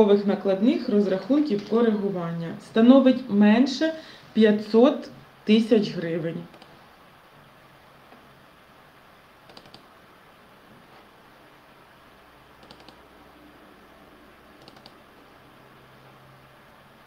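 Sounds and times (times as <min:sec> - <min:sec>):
faint steady hiss: 0:00.0 - 0:17.0
computer mouse clicking: 0:06.5 - 0:06.8, 0:09.5 - 0:09.9, 0:12.6 - 0:13.0, 0:14.6 - 0:15.0.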